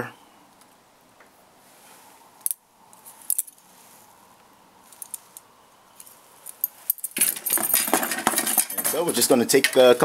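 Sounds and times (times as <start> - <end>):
metal rods clinking: 4.9 - 10.0.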